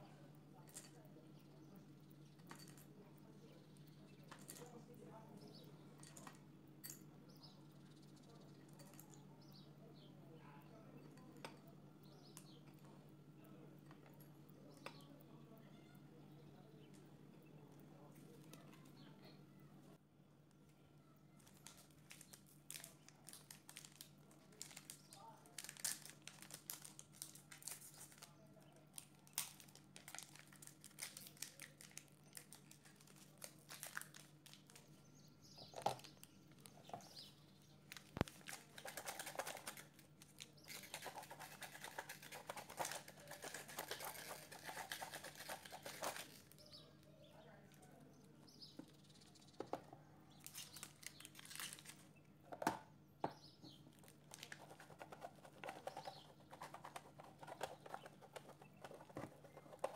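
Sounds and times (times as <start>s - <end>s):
chocolate grated on metal grater: 40.7s - 46.5s.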